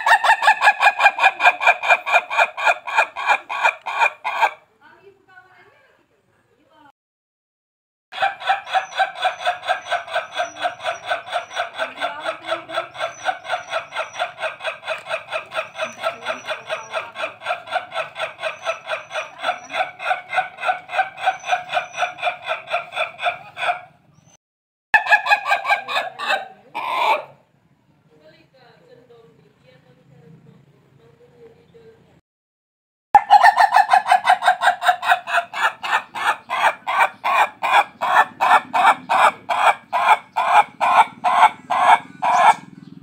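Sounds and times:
rooster crowing stutteringly: 0.0 - 4.6, 33.2 - 42.7.

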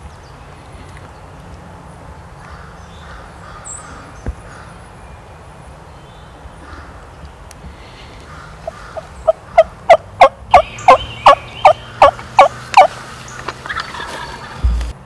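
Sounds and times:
turkey yelps: 8.6 - 12.9.

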